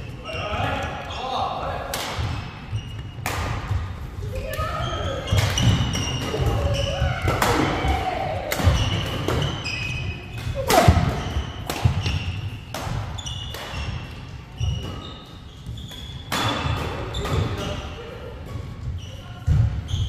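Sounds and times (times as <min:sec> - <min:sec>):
shoes squeaking on court: 0:00.0 - 0:01.6, 0:02.2 - 0:07.3, 0:08.7 - 0:20.0
racket hitting shuttlecock: 0:01.9 - 0:03.8, 0:05.2 - 0:15.1, 0:15.9 - 0:17.8.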